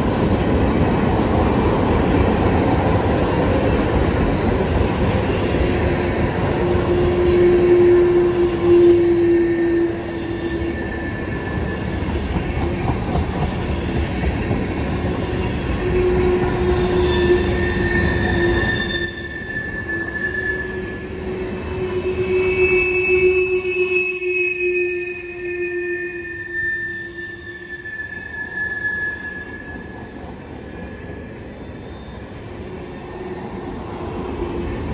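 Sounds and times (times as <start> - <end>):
train wheels rumbling on rail: 0.0 - 34.9
wheel squeal: 6.9 - 12.3, 14.8 - 30.2.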